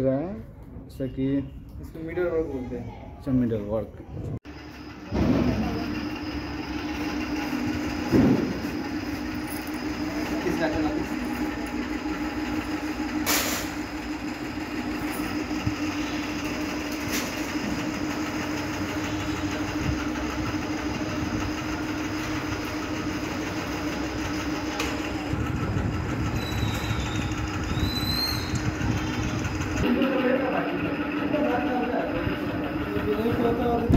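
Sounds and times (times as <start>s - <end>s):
mechanical hum and rumble: 0.0s - 33.9s.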